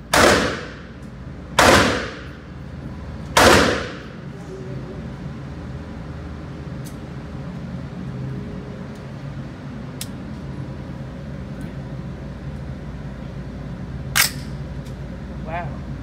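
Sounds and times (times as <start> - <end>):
steady low indoor hum: 0.0 - 16.0
gunshots: 0.1 - 0.8, 1.6 - 2.3, 3.4 - 4.0.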